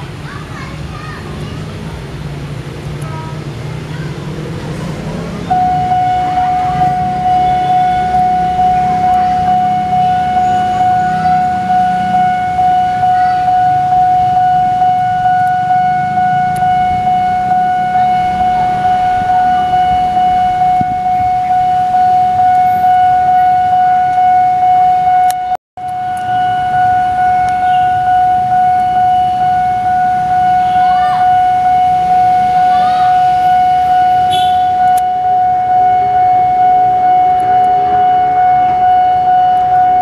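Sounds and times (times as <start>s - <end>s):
level crossing warning alarm: 4.2s - 40.0s.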